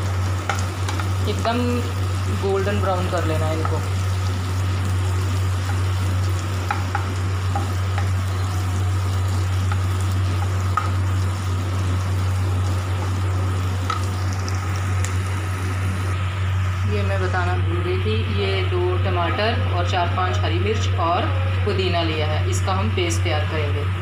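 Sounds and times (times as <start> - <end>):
onions sizzling in a pan: 0.0 - 19.4
steady low hum: 0.0 - 24.0
spatula tapping pan: 0.4 - 1.1, 6.6 - 8.2, 9.6 - 11.0.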